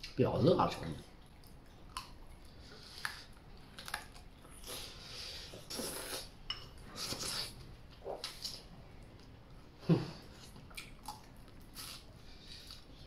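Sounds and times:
soft chewing: 0.9 - 13.0.

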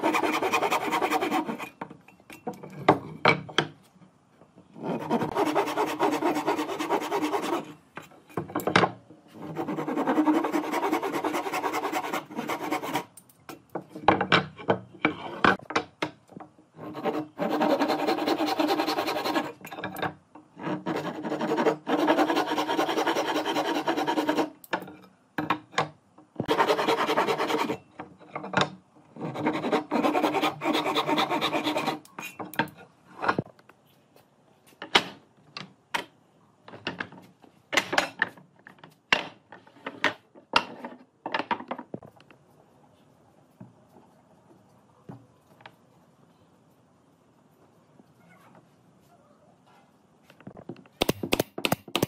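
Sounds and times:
tool working wood: 0.0 - 1.8, 4.8 - 7.7, 29.2 - 32.1.

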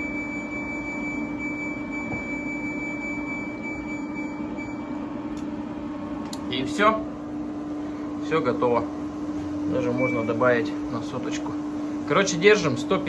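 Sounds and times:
steady low hum: 0.0 - 13.0
fan hiss: 5.2 - 13.0.

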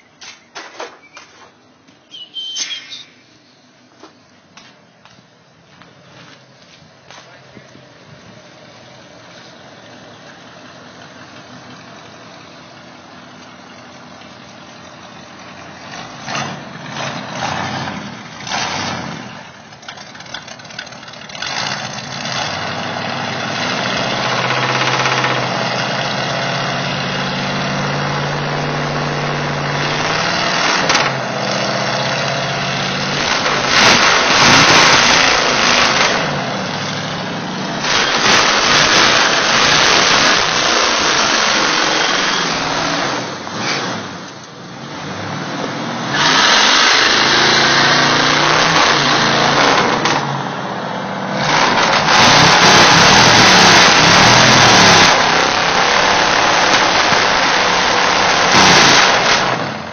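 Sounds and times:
truck engine running and revving: 7.1 - 59.9
truck engine cranking: 14.8 - 45.4, 46.0 - 50.4, 51.3 - 59.9.

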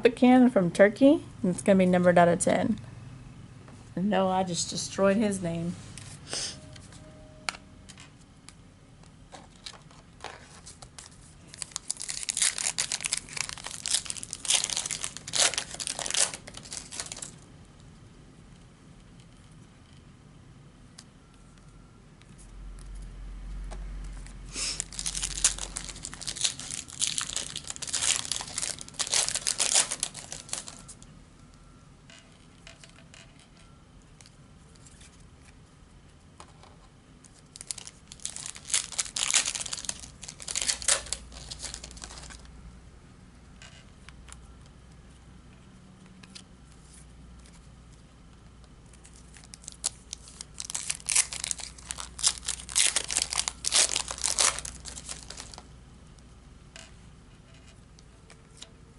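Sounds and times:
foil packs crinkling and tearing: 10.6 - 17.4, 24.7 - 31.0, 37.4 - 42.5, 49.0 - 55.7.

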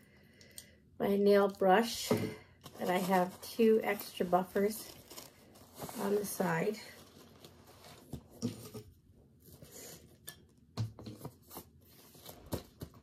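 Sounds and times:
fabric bag rustling: 2.7 - 8.1.

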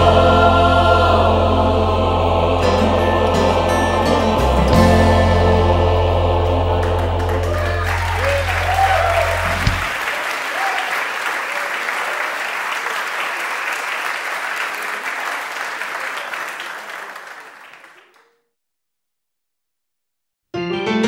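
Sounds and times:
gospel song held chord: 0.0 - 10.0
audience applause: 6.4 - 18.3.

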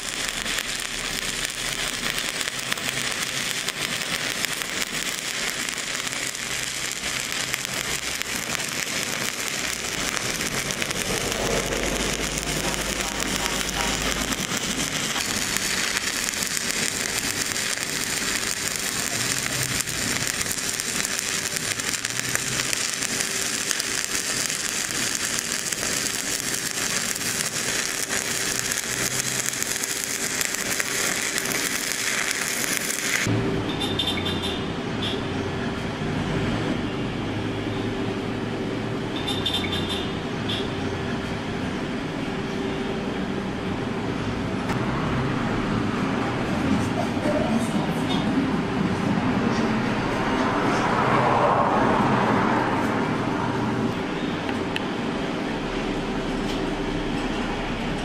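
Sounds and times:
welding arc crackling and sizzling: 0.0 - 33.3.

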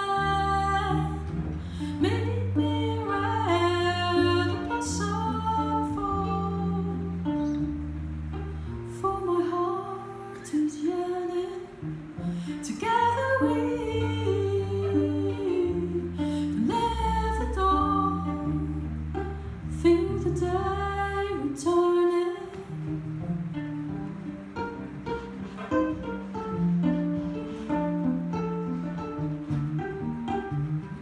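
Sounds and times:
woman singing: 0.0 - 7.8, 8.7 - 22.9
electric bass guitar: 0.0 - 31.0
plucked viola: 0.0 - 31.0.

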